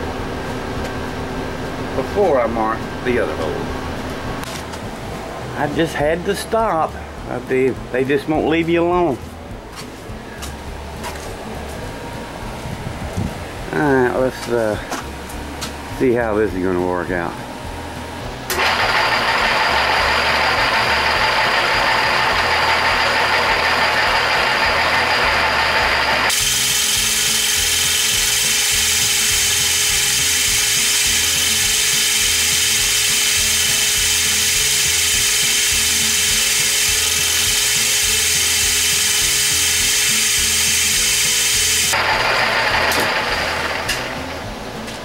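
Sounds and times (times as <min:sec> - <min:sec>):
drill press drilling metal: 0:18.5 - 0:44.3.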